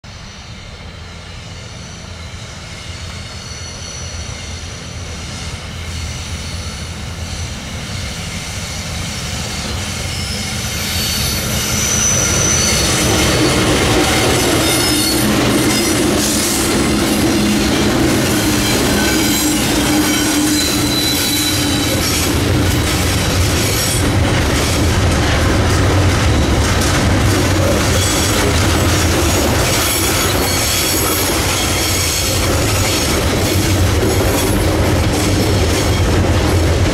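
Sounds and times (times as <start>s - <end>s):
diesel locomotive engine drone: 0.0s - 36.9s
high wheel squeal: 0.3s - 36.2s
train wheel clatter: 4.3s - 36.9s.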